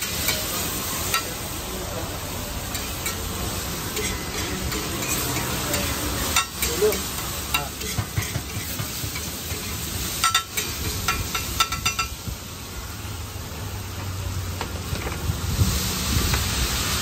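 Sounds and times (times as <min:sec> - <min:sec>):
food sizzling on a griddle: 0:00.0 - 0:17.0
spatula clinking on griddle: 0:00.1 - 0:01.4, 0:02.7 - 0:03.3, 0:03.9 - 0:12.2
metal spatula scraping griddle: 0:03.9 - 0:12.0.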